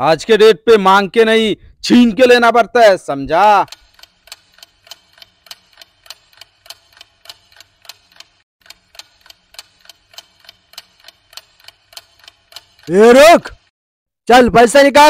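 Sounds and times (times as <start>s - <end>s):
clock ticking: 3.2s - 13.7s.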